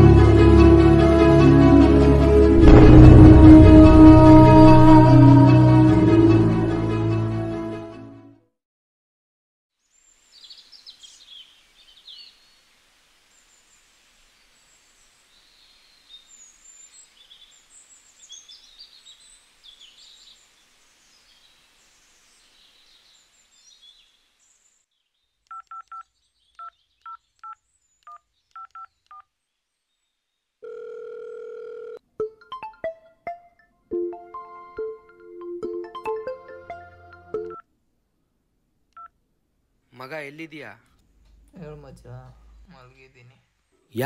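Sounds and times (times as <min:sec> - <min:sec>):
faint outdoor hiss: 0:09.7 - 0:32.2, 0:37.6 - 0:44.0
phone ringing tone: 0:30.6 - 0:32.0.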